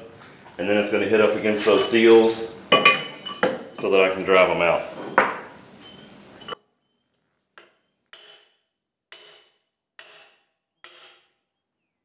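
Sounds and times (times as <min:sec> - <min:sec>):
hammer striking steel bar: 0:07.6 - 0:11.4.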